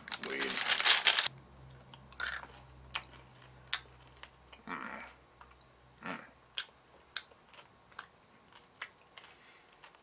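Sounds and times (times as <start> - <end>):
crunching candy: 0.0 - 1.3.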